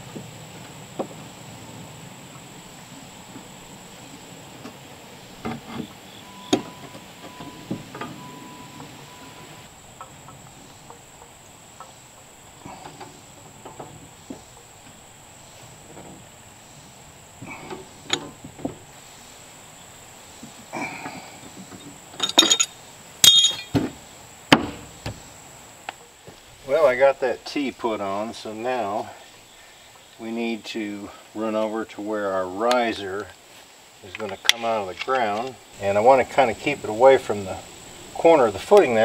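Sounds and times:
metal clicks and clinks: 22.2 - 23.7
loud metal clanks: 22.2 - 24.9.

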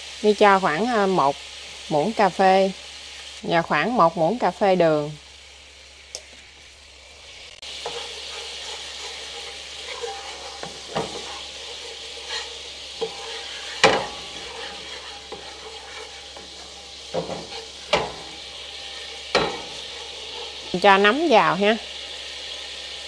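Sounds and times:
sauce simmering and sizzling: 0.0 - 23.0
spatula scraping pan: 7.6 - 21.2
spatula knocking on pan: 7.8 - 12.4, 13.0 - 18.4, 19.0 - 19.9.

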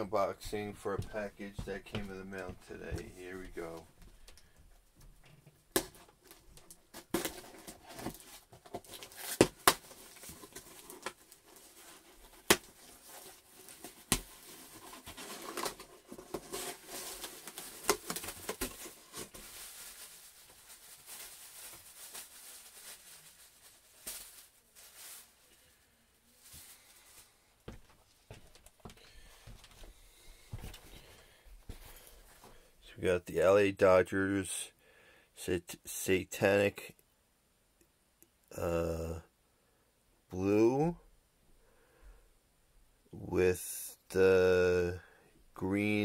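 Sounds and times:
plastic bag rustling: 5.9 - 32.5.

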